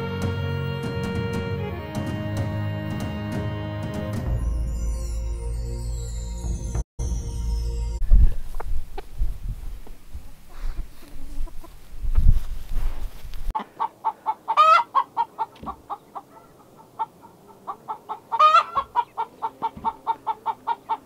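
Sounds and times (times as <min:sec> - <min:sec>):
hen clucking: 0:10.5 - 0:11.9, 0:13.6 - 0:21.0
hen squawking: 0:13.6 - 0:21.0.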